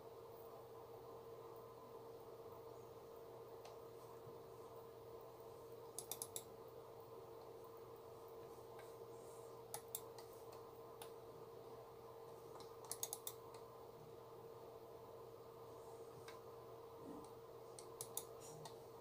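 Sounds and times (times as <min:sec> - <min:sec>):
faint steady hum: 0:00.0 - 0:19.0
computer mouse clicking: 0:05.9 - 0:06.5, 0:09.7 - 0:11.2, 0:12.5 - 0:13.7, 0:16.2 - 0:16.4, 0:17.2 - 0:18.8.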